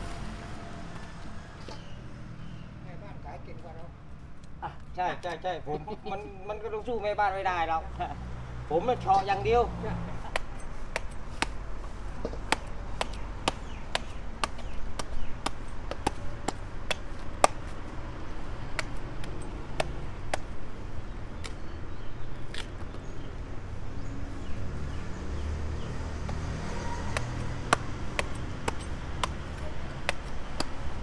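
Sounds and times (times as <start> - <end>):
knife chopping fruit: 12.3 - 17.7, 26.2 - 31.0.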